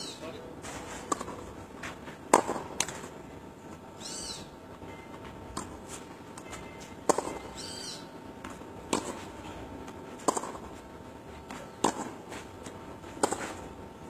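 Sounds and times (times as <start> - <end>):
tennis ball bouncing: 1.1 - 3.1, 5.2 - 7.6, 8.4 - 13.8
tennis racket hitting ball: 2.3 - 3.1, 7.0 - 7.5, 8.4 - 9.5, 10.2 - 10.8, 11.4 - 13.7.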